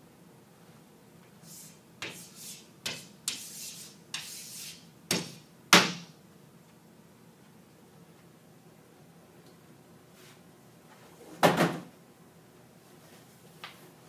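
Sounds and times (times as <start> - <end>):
chalk tapping and scratching: 1.4 - 6.0.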